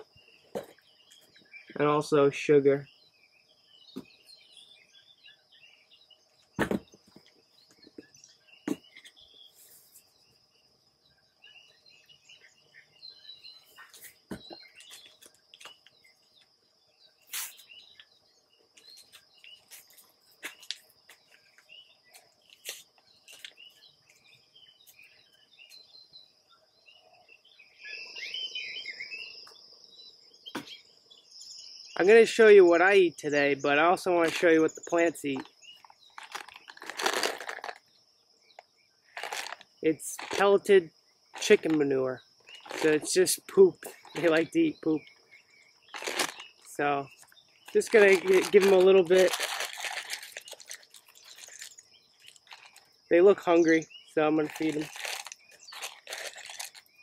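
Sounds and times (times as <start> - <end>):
bird chirps: 0.0 - 57.0
rustling: 35.4 - 37.8, 39.1 - 40.4, 42.5 - 43.1, 45.9 - 52.9, 54.4 - 56.9.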